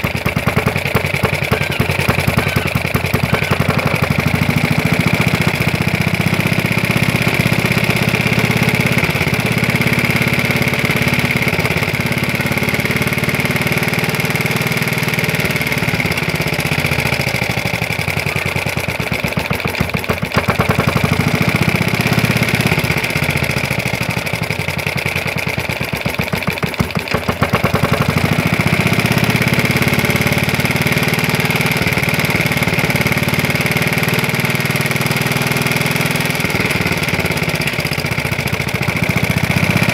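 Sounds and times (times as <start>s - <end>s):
single-cylinder engine running: 0.0s - 39.9s.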